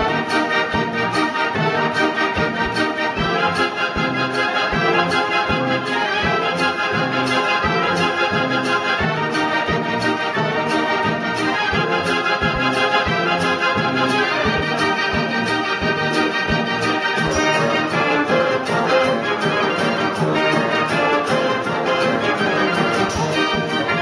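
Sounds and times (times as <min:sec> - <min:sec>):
organ pipes and accordions: 0:00.0 - 0:24.0.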